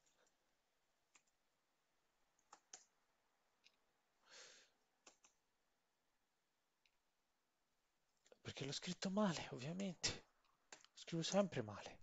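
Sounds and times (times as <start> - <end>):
computer keyboard keystrokes: 2.4 - 2.9, 5.0 - 5.4.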